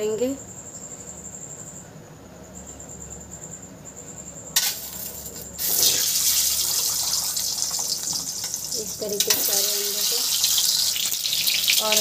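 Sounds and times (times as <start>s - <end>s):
hot oil sizzling: 4.6s - 12.0s.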